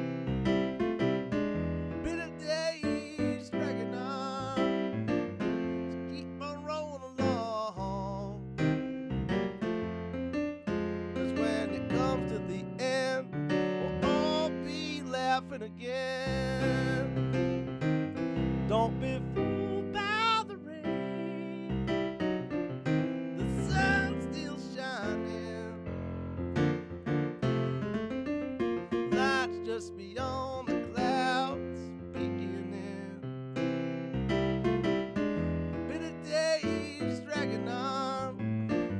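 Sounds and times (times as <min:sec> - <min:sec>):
digital piano playing: 0:00.0 - 0:38.9
man singing: 0:02.0 - 0:05.1, 0:05.7 - 0:08.4, 0:11.2 - 0:17.6, 0:18.7 - 0:22.0, 0:23.4 - 0:25.8, 0:29.1 - 0:33.3, 0:35.9 - 0:38.6.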